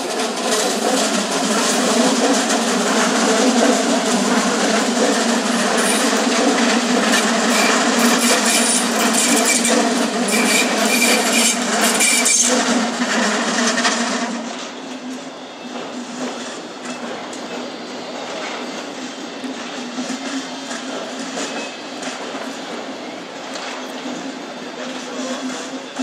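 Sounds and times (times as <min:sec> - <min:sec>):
train rolling in: 0:00.0 - 0:26.0
train wheels on rails: 0:00.0 - 0:26.0
high wheel squeals: 0:07.4 - 0:12.6.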